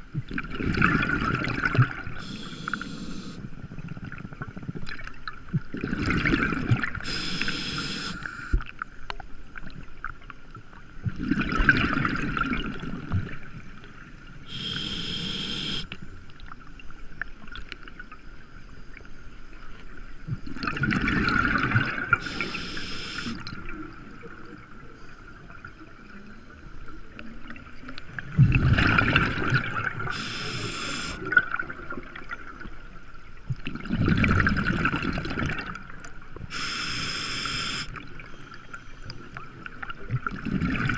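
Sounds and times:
exhaled bubbles burbling: 0.1 - 7.5, 11.1 - 13.4, 20.3 - 22.5, 27.6 - 32.5, 33.6 - 35.9, 40.0 - 40.9
faint steady tone: 1.9 - 3.9, 7.0 - 9.8, 13.5 - 20.4, 21.9 - 28.2, 29.9 - 33.4, 36.1 - 40.0
diver inhaling through regulator: 2.2 - 3.5, 7.0 - 8.6, 14.5 - 15.9, 22.2 - 23.4, 30.1 - 31.3, 36.5 - 37.9.

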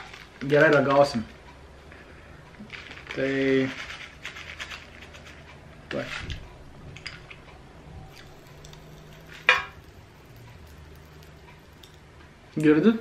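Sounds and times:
candy packet rustling: 0.0 - 1.2, 2.6 - 6.4
popping candy crackling: 0.0 - 1.3, 2.6 - 6.1, 8.1 - 12.0.

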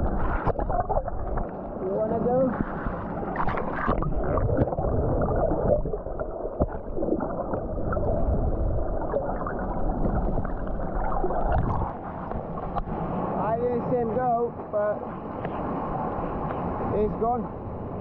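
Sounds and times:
underwater rumbling and gurgling: 0.0 - 13.4.

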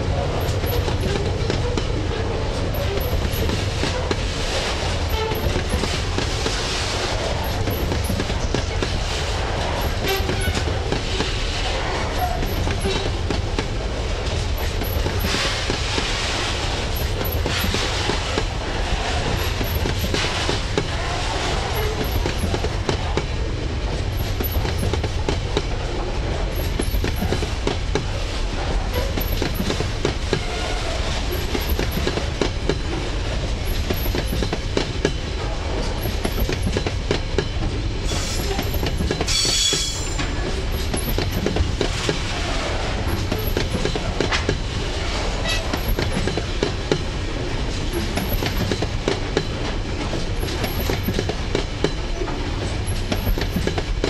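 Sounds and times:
clickety-clack over rail joints: 0.0 - 54.0
train wheels rumbling: 0.0 - 54.0
high-pitched wheel squeal: 39.3 - 40.2.

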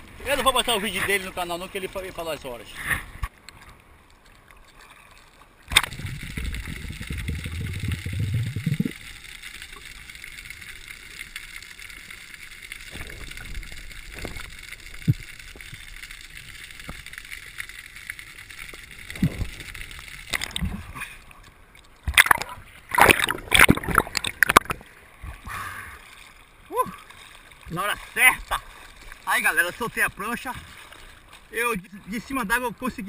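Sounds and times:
water rushing over camera: 0.0 - 33.0
muffled underwater hiss: 5.8 - 21.4
diver splashing into water: 22.0 - 24.8.

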